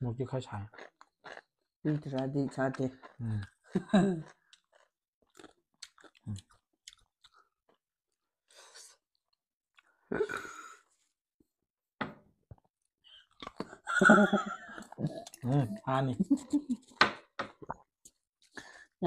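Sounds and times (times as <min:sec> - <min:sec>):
close chewing and mouth noises: 0:00.4 - 0:07.8, 0:13.2 - 0:14.0, 0:14.6 - 0:19.0
people laughing: 0:13.9 - 0:16.9.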